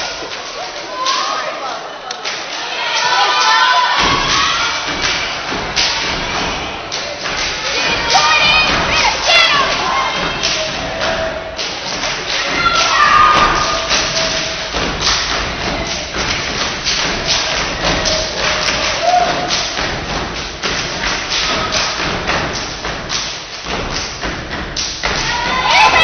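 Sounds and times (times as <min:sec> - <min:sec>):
feet stomping on stage: 0:11.9 - 0:26.0.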